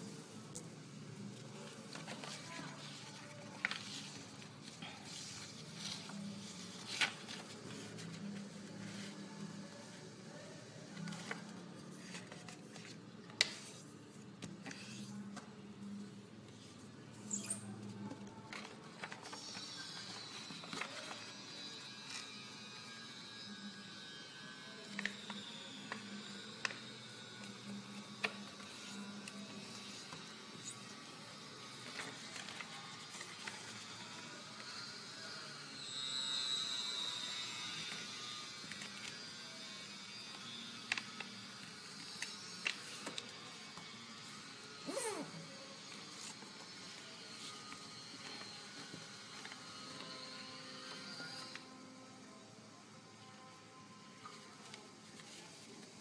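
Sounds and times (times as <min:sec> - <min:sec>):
paper folding crackles and taps: 0:01.6 - 0:06.2, 0:11.0 - 0:13.7
paper crackling: 0:01.6 - 0:09.2
paper rustling: 0:01.6 - 0:09.2, 0:31.8 - 0:33.8.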